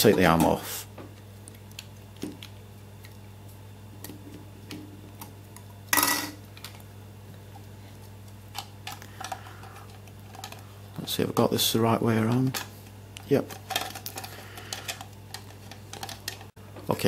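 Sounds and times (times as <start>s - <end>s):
plastic parts clicking and clattering: 12.2s - 16.5s.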